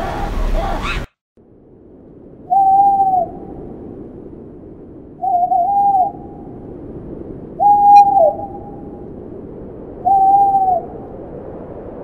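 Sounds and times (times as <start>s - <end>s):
owl hooting: 0.0s - 1.1s, 2.5s - 3.5s, 5.2s - 6.4s, 7.6s - 8.8s, 10.0s - 11.0s.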